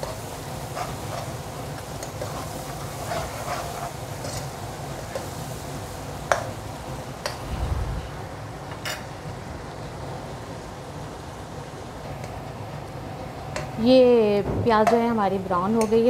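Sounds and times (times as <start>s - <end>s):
metal spoon scraping a pan: 0.0s - 5.3s
onions sizzling in oil: 0.0s - 16.0s.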